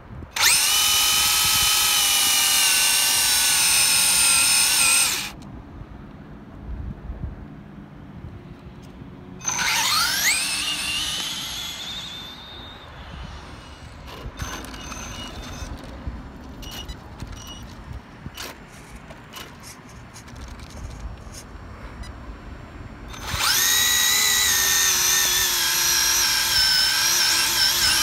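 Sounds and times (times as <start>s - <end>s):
electric motor whining up: 0.4s - 5.4s, 9.4s - 15.7s, 23.1s - 28.0s.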